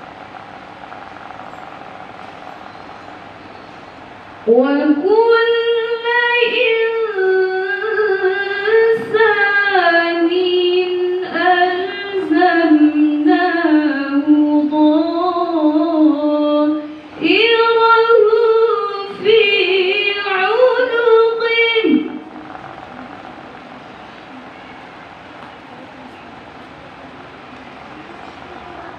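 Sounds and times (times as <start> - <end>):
woman chanting into a microphone: 4.4 - 22.3.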